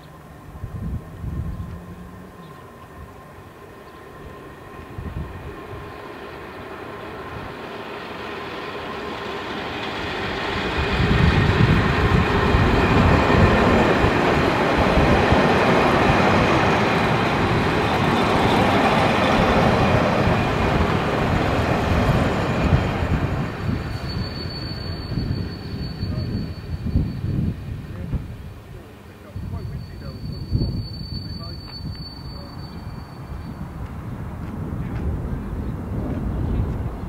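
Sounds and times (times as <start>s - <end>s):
diesel train running past: 0.0s - 37.0s
wheels rumbling on rails: 0.0s - 37.0s.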